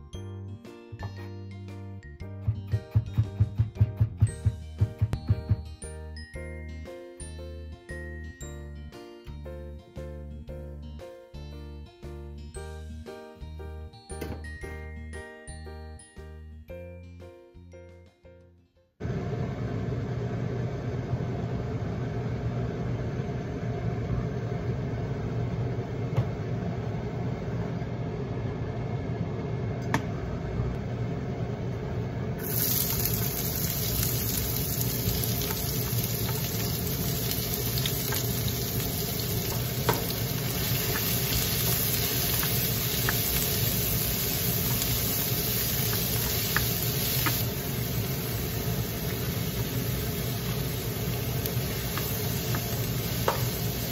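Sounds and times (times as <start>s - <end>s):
onion sizzling in hot oil: 32.4s - 53.9s.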